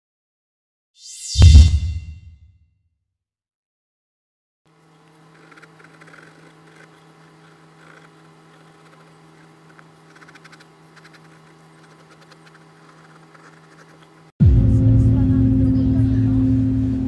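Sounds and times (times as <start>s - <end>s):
steady low hum: 4.7s - 17.0s
pencil scratching on paper: 5.1s - 14.3s.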